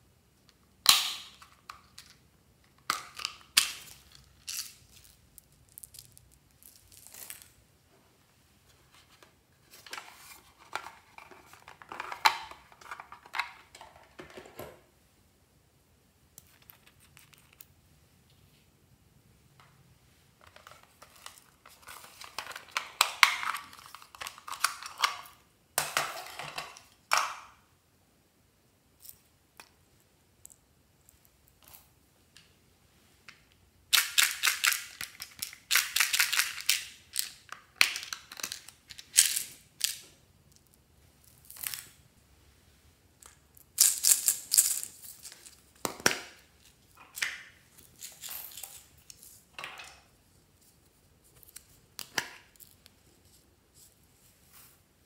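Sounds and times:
plastic toys rustling and clicking: 9.0 - 14.6, 20.4 - 27.4, 33.9 - 42.0, 43.2 - 54.0.

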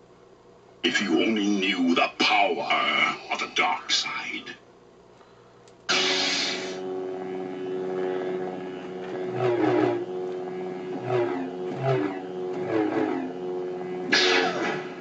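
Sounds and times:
lightsaber buzzing hum: 0.8 - 5.0, 5.7 - 15.0
lightsaber ignition burst: 5.9 - 6.8, 14.1 - 15.0
lightsaber swing sounds: 5.9 - 6.8, 14.0 - 15.0.

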